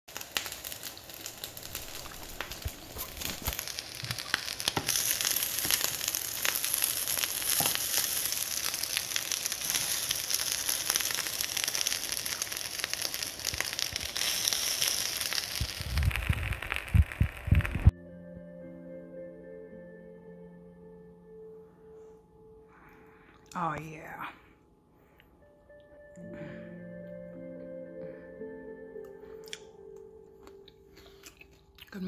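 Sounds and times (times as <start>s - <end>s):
food sizzling in a hot pan: 0.1s - 17.9s
small pops and crackles: 0.1s - 17.9s.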